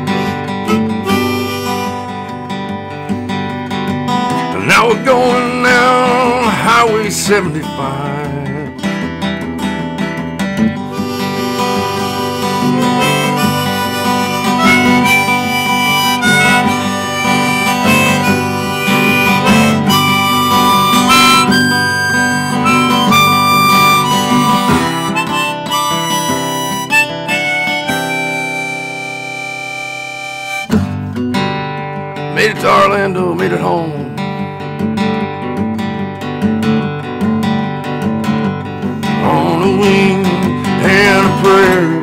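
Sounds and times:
harmonica playing held notes: 0.0 - 2.9, 10.8 - 31.2
strummed acoustic guitar: 0.0 - 42.0.

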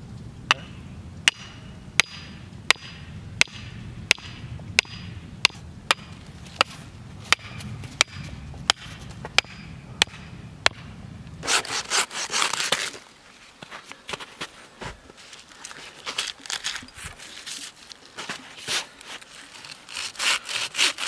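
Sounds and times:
hatchet knocking wooden stake: 0.5 - 10.9
hand saw cutting log: 11.4 - 13.0, 18.6 - 21.0.

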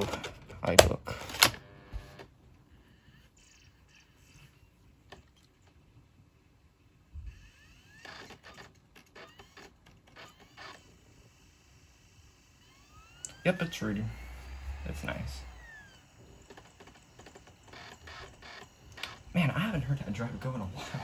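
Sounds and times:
cd drive whirring and whining: 1.1 - 5.3, 7.1 - 21.0.

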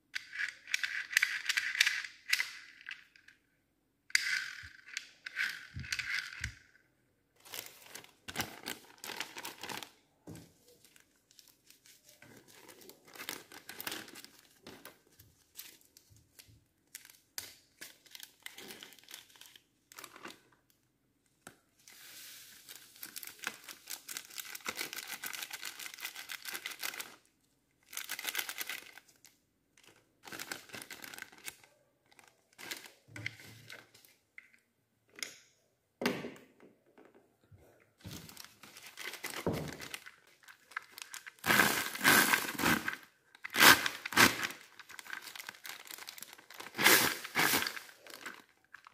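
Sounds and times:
plastic bag crinkling: 7.4 - 10.0, 22.6 - 27.2, 27.9 - 33.1, 38.0 - 48.9.

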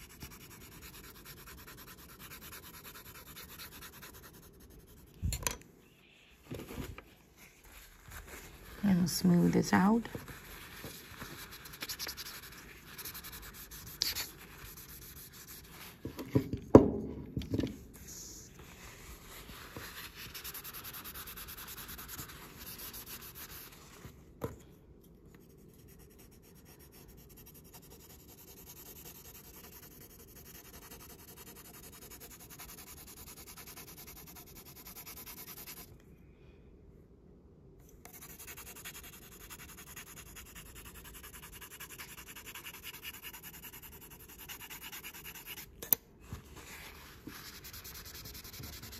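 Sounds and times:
pencil shading on paper: 0.0 - 5.1, 25.5 - 35.9, 38.1 - 45.7, 47.3 - 48.9.

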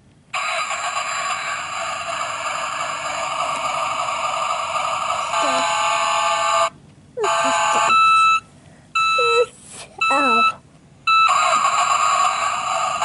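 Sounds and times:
toy buzzing alarm tone: 4.6 - 8.4, 9.0 - 13.0.

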